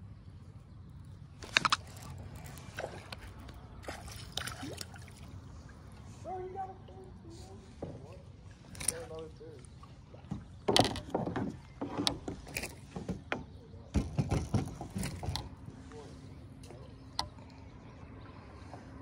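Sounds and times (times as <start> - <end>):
knocks and clatters on plastic kayak: 10.0 - 15.8.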